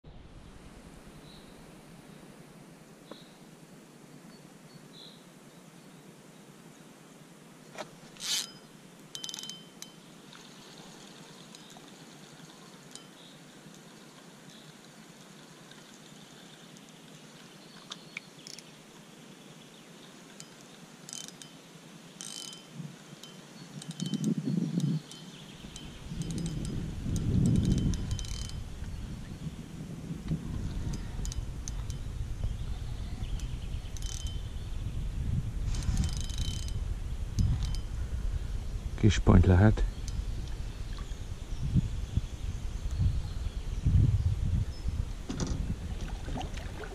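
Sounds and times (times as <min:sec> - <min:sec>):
fishing reel drag ratcheting: 0:08.2 - 0:10.0, 0:20.4 - 0:21.5, 0:22.2 - 0:28.7, 0:30.8 - 0:32.0, 0:33.9 - 0:34.4, 0:35.7 - 0:36.8, 0:37.4 - 0:37.9.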